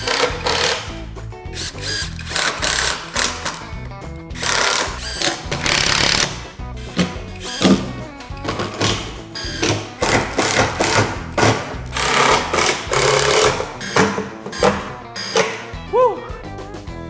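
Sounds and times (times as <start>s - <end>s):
impact driver driving screws: 0.0s - 1.0s, 1.6s - 3.7s, 4.4s - 15.7s
background music: 0.0s - 17.0s.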